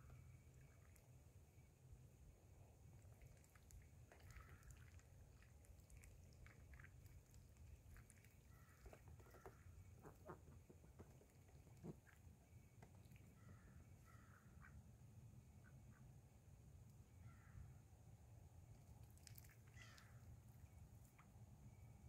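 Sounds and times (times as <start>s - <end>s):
duck bills nibbling in grass: 2.8s - 13.7s, 18.8s - 21.3s
quiet duck calls: 4.1s - 4.9s, 8.5s - 12.2s, 13.1s - 14.9s, 19.6s - 20.2s.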